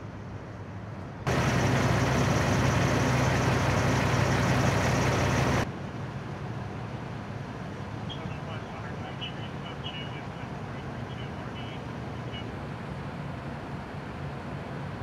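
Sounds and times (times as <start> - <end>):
quiet engine hum: 0.0 - 15.0
diesel engine idling: 1.3 - 5.7.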